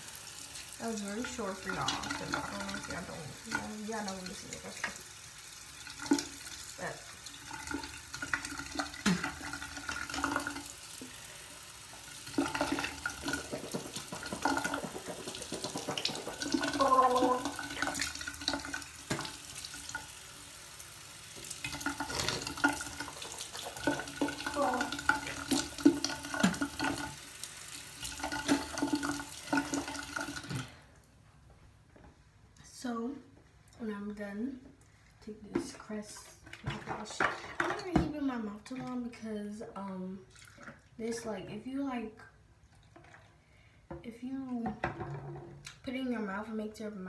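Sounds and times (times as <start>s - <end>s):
tap water splashing into basin: 0.0s - 5.2s, 5.8s - 11.2s, 11.9s - 20.4s, 21.2s - 30.8s, 36.4s - 39.0s, 40.3s - 40.9s, 42.7s - 44.0s
mouth rinsing and spitting: 5.8s - 30.8s.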